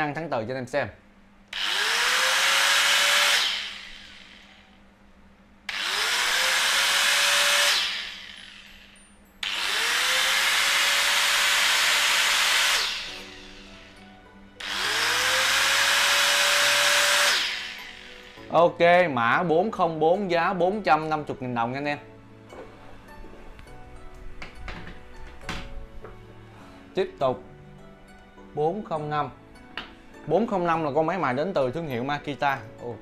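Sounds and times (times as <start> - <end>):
angle grinder motor whine: 1.5 - 4.8, 5.7 - 18.6.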